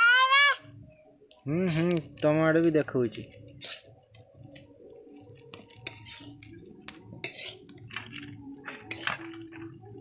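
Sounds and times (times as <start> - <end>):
metal utensils scraping wok: 1.6 - 2.2, 3.1 - 10.0.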